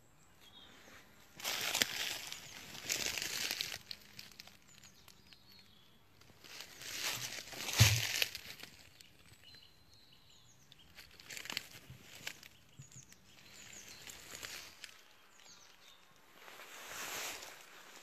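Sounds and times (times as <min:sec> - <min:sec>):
faint bird chirps: 0:00.0 - 0:06.1, 0:08.6 - 0:18.0
footsteps in dry leaves: 0:00.7 - 0:05.1, 0:06.2 - 0:09.0, 0:11.0 - 0:18.0.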